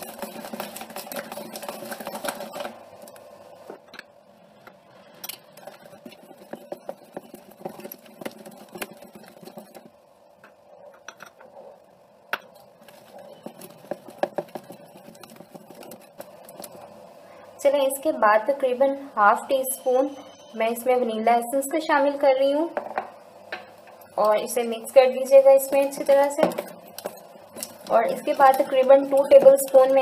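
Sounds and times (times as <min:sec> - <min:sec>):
utensil beating batter in bowl: 0:00.0 - 0:03.3, 0:05.2 - 0:10.0, 0:12.3 - 0:16.9, 0:24.2 - 0:30.0.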